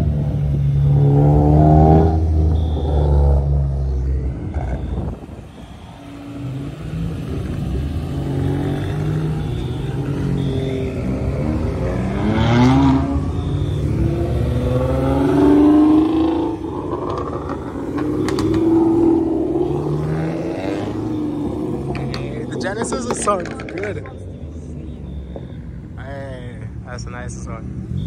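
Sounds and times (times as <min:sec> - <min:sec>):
car engines accelerating past: 0:06.3 - 0:22.6.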